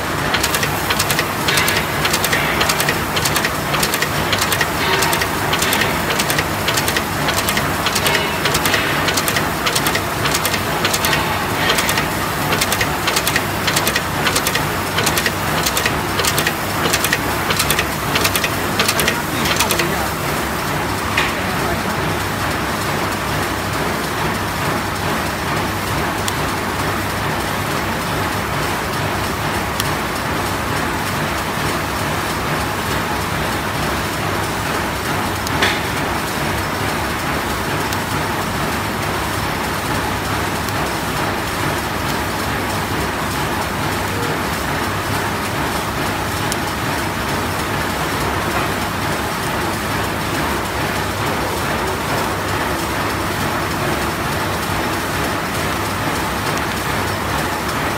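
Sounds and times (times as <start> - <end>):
snap button machine running: 0.0 - 21.3
sharp click: 0.3 - 19.9.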